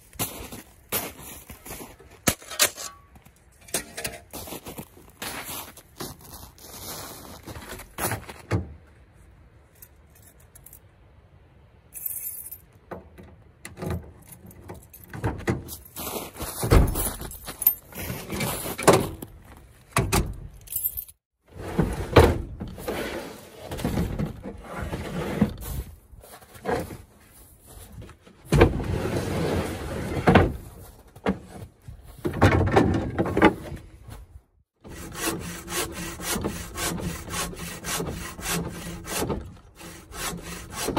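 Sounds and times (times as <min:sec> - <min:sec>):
bow saw cutting log: 0:34.8 - 0:40.9.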